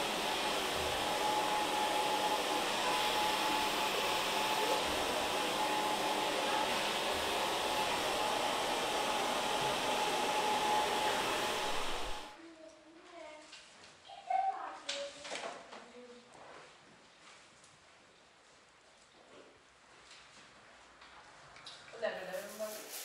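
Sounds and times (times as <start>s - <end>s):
hair dryer blowing: 0.0s - 12.4s.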